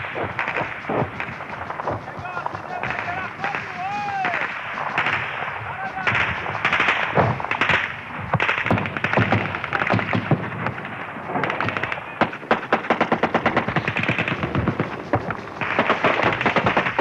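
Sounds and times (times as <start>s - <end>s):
automatic gunfire: 6.1s - 14.8s, 15.6s - 17.0s.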